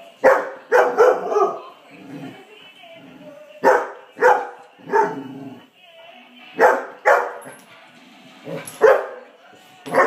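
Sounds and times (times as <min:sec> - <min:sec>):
dog barking: 0:00.2 - 0:01.6, 0:03.6 - 0:05.2, 0:06.6 - 0:07.4, 0:08.8 - 0:09.2.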